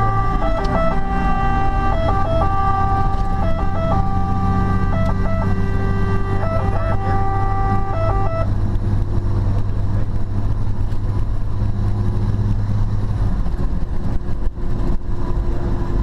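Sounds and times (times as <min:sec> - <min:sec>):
stepped electronic tone: 0:00.0 - 0:08.5
diesel engine and road noise: 0:00.0 - 0:16.0.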